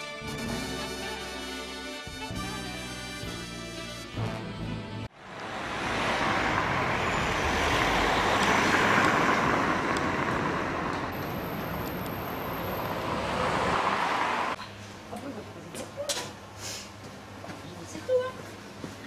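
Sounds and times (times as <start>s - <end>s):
passing road traffic: 5.0s - 18.0s.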